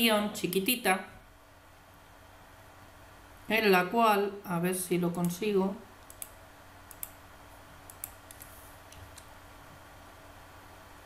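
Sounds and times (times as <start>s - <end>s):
faint low hum: 0.0s - 11.0s
mouse and keyboard clicks: 6.0s - 7.2s, 7.9s - 9.3s.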